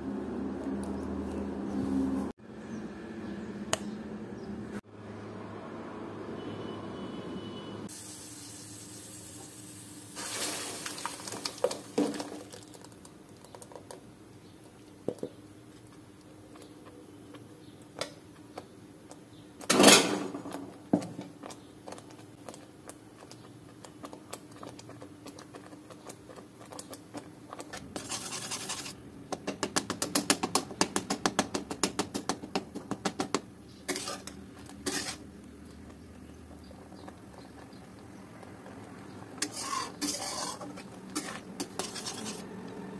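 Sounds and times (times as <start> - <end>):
metal spatula scraping pan: 28.0 - 29.0, 33.9 - 35.2, 39.4 - 42.5
metal utensils clinking: 39.4 - 42.4.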